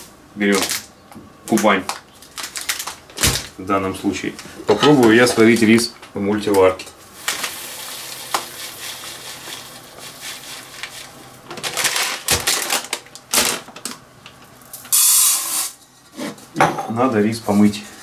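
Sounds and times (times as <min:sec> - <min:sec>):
rice pouring into metal cup: 0:07.2 - 0:11.0.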